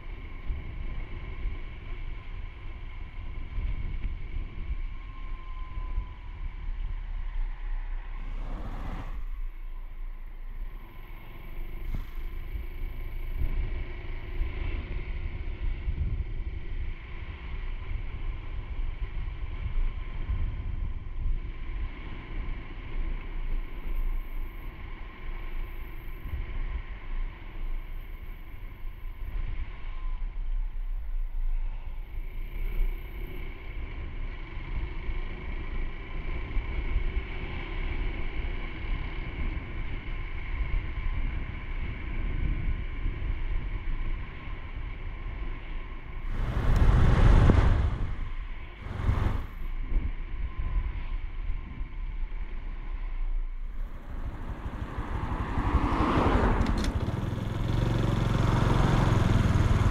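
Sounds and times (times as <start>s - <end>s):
wind buffeting microphone: 8.0s - 9.9s, 46.1s - 50.0s, 53.7s - 58.4s
motorcycle engine running: 46.3s - 49.6s, 53.8s - 59.9s.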